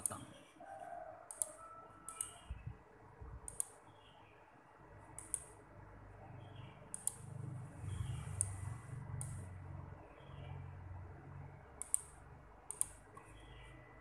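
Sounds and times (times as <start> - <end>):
computer mouse clicking: 0.0 - 0.2, 1.3 - 2.6, 3.4 - 3.8, 5.2 - 5.6, 6.9 - 9.5, 11.8 - 13.3.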